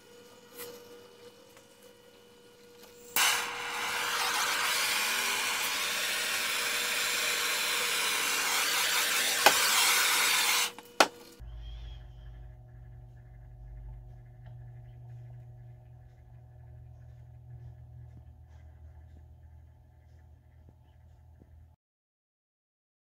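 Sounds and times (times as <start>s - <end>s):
propane torch hissing: 3.0s - 11.4s.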